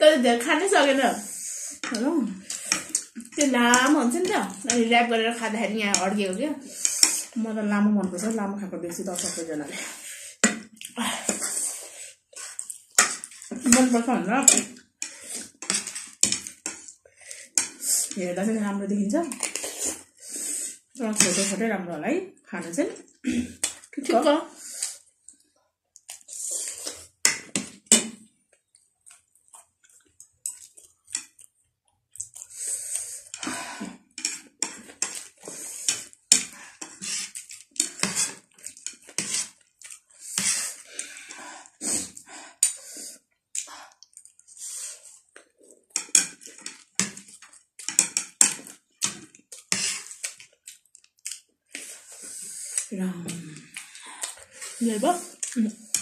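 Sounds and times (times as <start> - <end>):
slurping and chewing: 1.2 - 3.4, 6.6 - 7.4, 9.1 - 13.7, 14.5 - 18.2, 19.3 - 21.4, 24.5 - 56.0.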